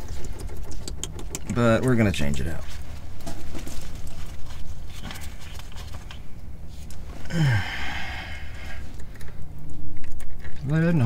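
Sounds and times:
low steady hum: 0:00.0 - 0:11.0
man sighing: 0:07.2 - 0:08.8.

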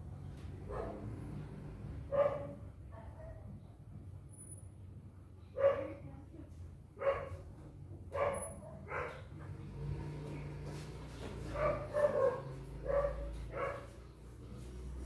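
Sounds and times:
dog barking: 0:00.7 - 0:01.2, 0:02.1 - 0:02.6, 0:05.6 - 0:06.0, 0:07.0 - 0:07.4, 0:08.1 - 0:09.4, 0:11.5 - 0:14.1.

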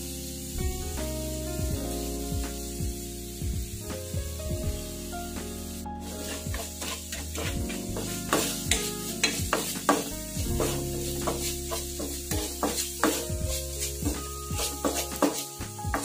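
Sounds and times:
meat sizzling in a wok: 0:00.0 - 0:16.0
wooden spatula scraping a pan: 0:06.0 - 0:16.0.

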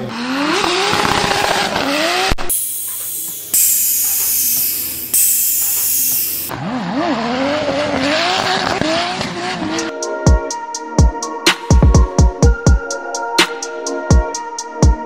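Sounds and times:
car engine revving: 0:00.0 - 0:09.9
tyres skidding: 0:00.0 - 0:09.9
music with heavy drum hits: 0:11.0 - 0:12.8.

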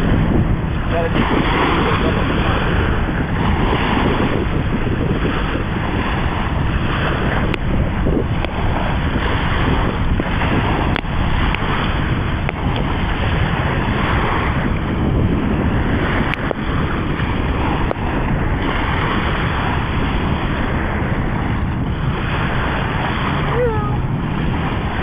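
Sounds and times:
surf on beach: 0:00.0 - 0:25.0
wind buffeting microphone: 0:00.0 - 0:25.0.

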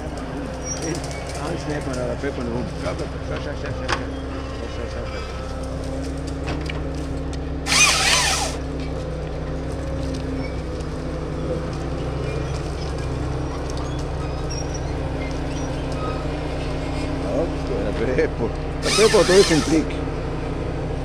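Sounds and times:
harvester engine and hydraulics: 0:00.0 - 0:17.7, 0:18.6 - 0:21.0
chain saw cutting through trunk: 0:07.7 - 0:08.7, 0:18.8 - 0:20.0.

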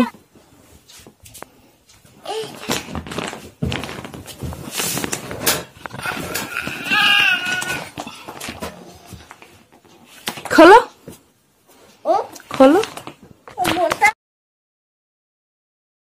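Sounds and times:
plastic bag crinkling: 0:02.3 - 0:09.5.

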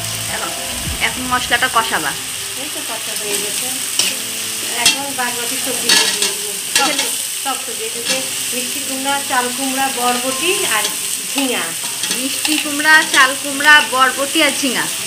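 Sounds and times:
spice paste sizzling in oil: 0:00.0 - 0:15.0
metal spatula scraping pan: 0:10.1 - 0:13.4.

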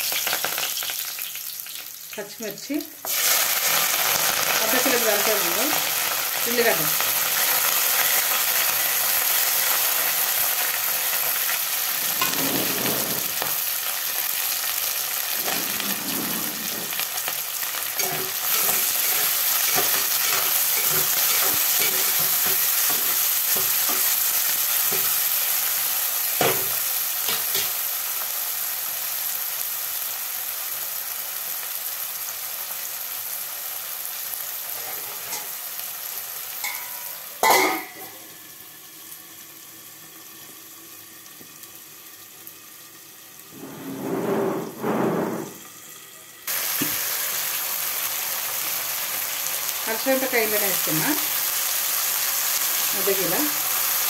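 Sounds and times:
onions sizzling in hot oil: 0:00.0 - 0:43.7, 0:45.5 - 0:54.0
metal spoon scraping a pot: 0:12.0 - 0:13.5, 0:15.4 - 0:17.0, 0:18.0 - 0:24.1, 0:43.5 - 0:45.6.

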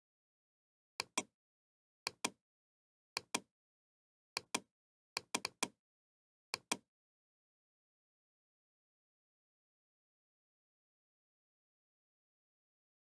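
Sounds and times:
computer mouse clicking: 0:01.0 - 0:01.3, 0:02.1 - 0:02.4, 0:03.2 - 0:03.5, 0:04.4 - 0:05.8, 0:06.6 - 0:06.8.

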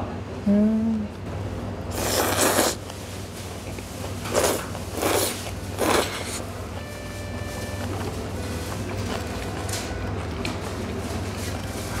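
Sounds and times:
person slurping noodles: 0:01.9 - 0:02.8, 0:04.3 - 0:06.5.

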